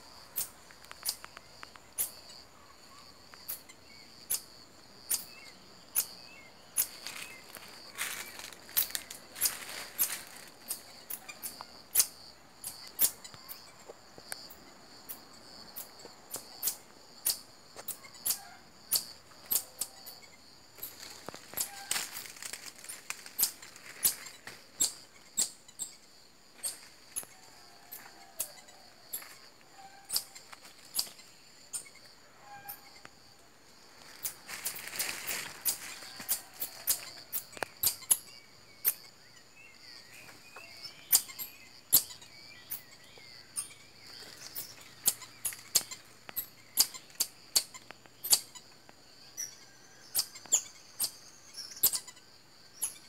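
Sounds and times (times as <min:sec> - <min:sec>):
marmosets chirping: 0:00.3 - 0:13.9, 0:15.8 - 0:29.2, 0:29.8 - 0:33.0, 0:34.2 - 0:48.7, 0:49.3 - 0:53.0.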